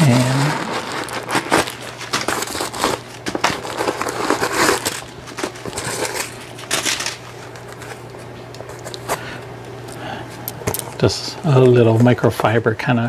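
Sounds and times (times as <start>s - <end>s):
packing paper crinkling: 0.0s - 9.3s.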